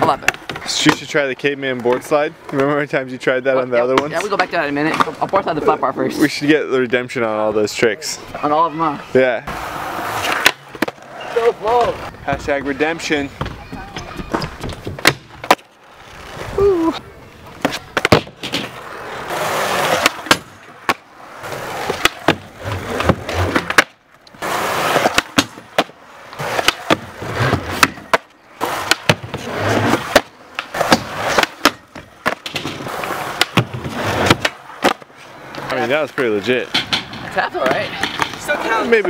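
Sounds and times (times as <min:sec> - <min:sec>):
skateboard clacks: 0:00.0 - 0:02.8, 0:10.0 - 0:15.7, 0:16.8 - 0:39.0
skateboard rolling on concrete: 0:00.0 - 0:39.0.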